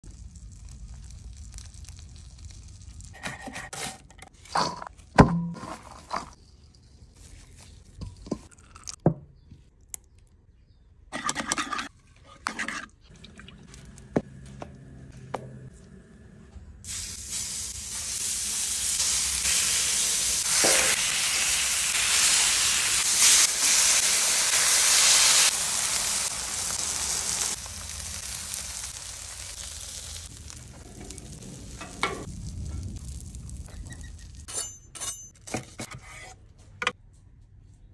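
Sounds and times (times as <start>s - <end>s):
food sizzling on griddle: 16.9s - 34.4s.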